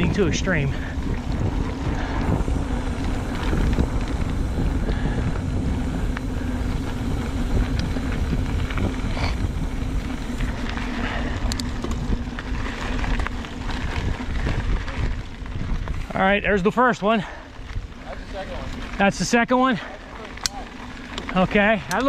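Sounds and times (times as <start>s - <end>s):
wind on microphone: 0.0s - 16.2s
bike rattles and clicks: 0.0s - 22.0s
bike tyres rolling on dirt: 0.0s - 22.0s
steady hum: 0.0s - 22.0s.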